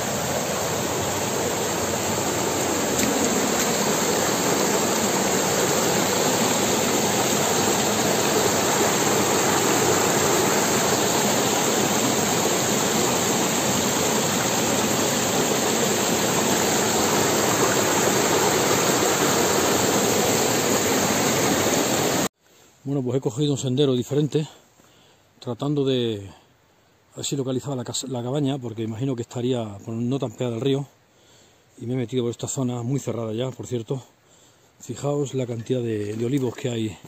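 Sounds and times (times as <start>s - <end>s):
river rushing over rocks: 0.0s - 22.3s.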